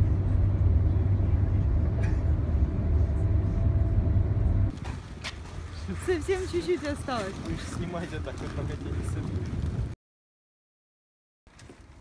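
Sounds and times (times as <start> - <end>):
train rumble inside carriage: 0.0 - 5.7.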